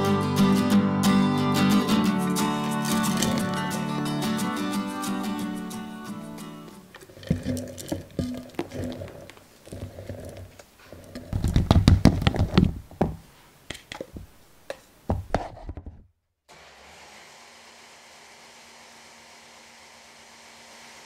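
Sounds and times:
faint steady hiss: 0:12.8 - 0:15.2.

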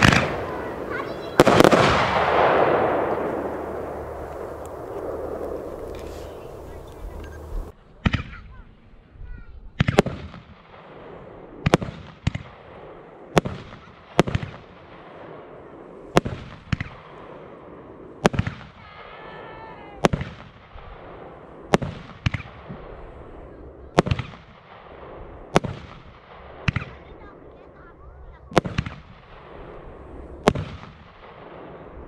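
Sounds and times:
firework shell bursting: 0:00.0 - 0:07.7
firework launch bangs: 0:00.0 - 0:08.4, 0:28.5 - 0:31.9.

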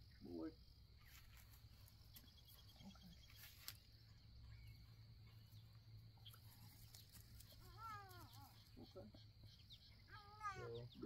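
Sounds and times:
insects chirring: 0:00.0 - 0:11.0.

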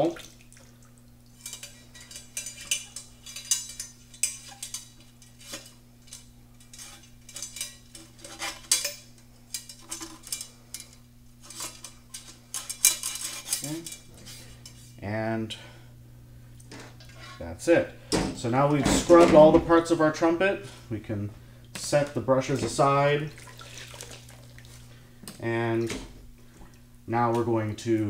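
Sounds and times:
steady low hum: 0:00.0 - 0:28.0
wire brush scraping brass tubing: 0:01.4 - 0:15.0.

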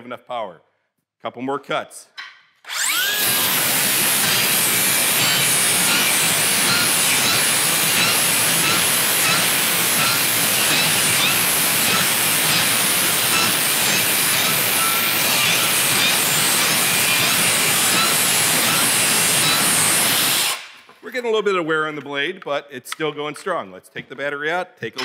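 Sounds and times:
circular saw cutting nailed board: 0:02.7 - 0:20.9.

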